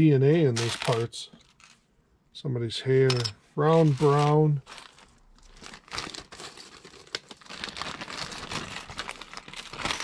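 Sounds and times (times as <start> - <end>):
plastic bag crinkling: 0.5 - 1.8, 3.7 - 10.0
plastic pieces clicking and rattling: 3.9 - 10.0.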